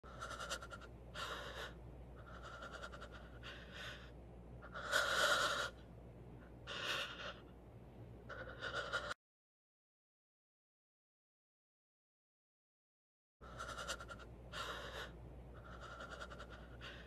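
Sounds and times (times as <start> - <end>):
person breathing heavily: 0.0 - 5.8, 6.6 - 7.5, 8.3 - 9.2, 13.4 - 17.0.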